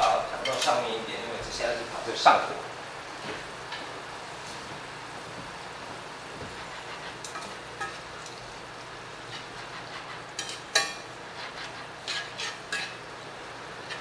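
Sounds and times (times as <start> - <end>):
metal tongs scraping a pan: 0.0 - 0.9, 6.8 - 8.4, 9.2 - 13.1
vegetables sizzling in a pan: 6.7 - 14.0.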